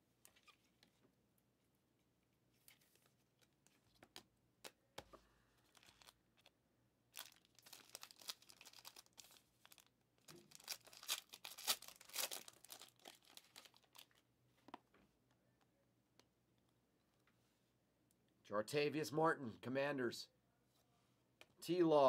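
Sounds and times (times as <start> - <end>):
foil wrapper crackling: 7.1 - 14.2.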